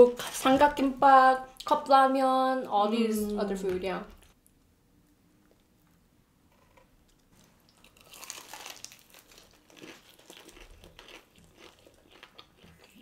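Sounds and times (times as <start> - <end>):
fried chicken crunching: 7.4 - 13.0.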